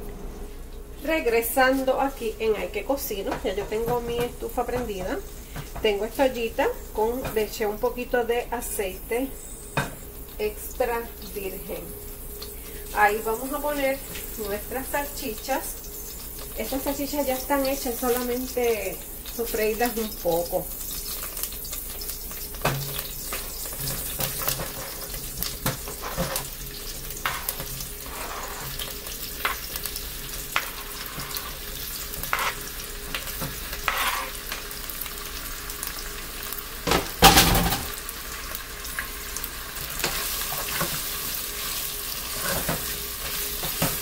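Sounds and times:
sausage sizzling in oil: 0.4 - 44.0
spatula stirring in pot: 22.7 - 29.7, 30.4 - 34.5
knife scraping cutting board: 25.9 - 26.5, 27.2 - 29.6, 32.2 - 32.6, 33.8 - 34.4.

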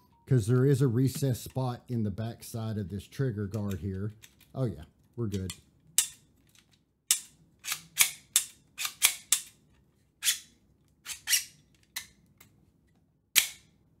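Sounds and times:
pistol trigger clicks: 13.4 - 13.7.

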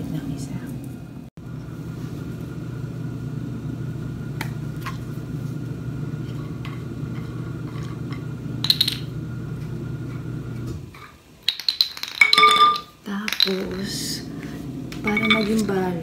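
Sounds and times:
washing machine humming: 0.0 - 16.0
dumbbell parts clinking: 11.4 - 13.9, 15.0 - 15.8.

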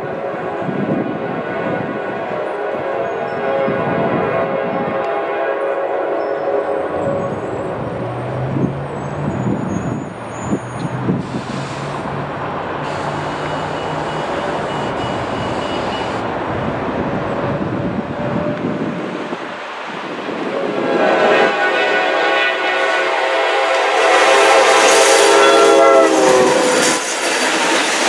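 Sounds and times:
train horn: 0.0 - 8.2, 18.1 - 19.3, 20.5 - 27.2
locomotive engine running: 7.1 - 17.3
air hiss: 11.2 - 12.1, 12.8 - 14.0.

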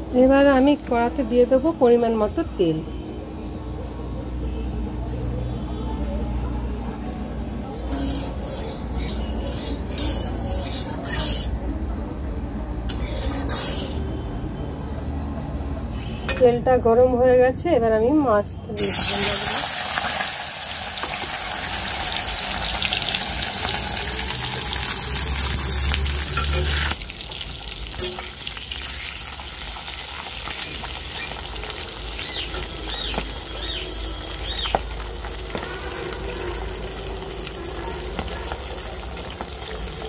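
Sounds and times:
fish sizzling in hot oil: 7.8 - 11.5, 18.8 - 40.0.

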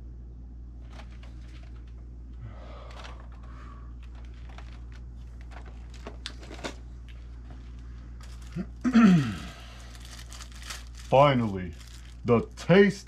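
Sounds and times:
steady low hum: 0.0 - 13.0
rustling: 0.8 - 2.0, 2.8 - 8.8, 9.6 - 12.3.

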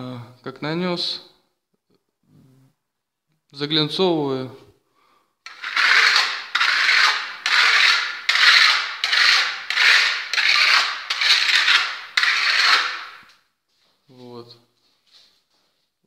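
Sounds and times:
trowel scraping plaster: 5.4 - 13.4.

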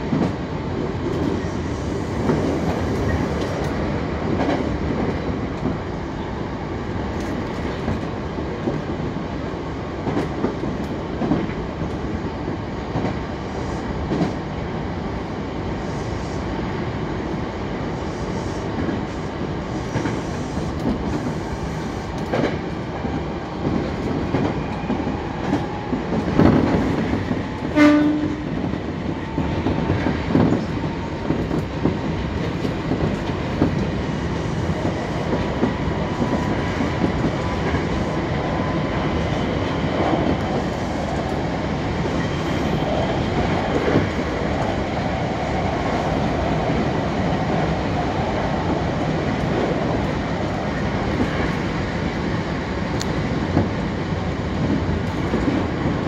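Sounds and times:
train wheels rumbling on rails: 0.0 - 56.0
rail-joint clacks: 2.2 - 5.8, 19.8 - 34.0
train horn blast: 27.6 - 28.6.

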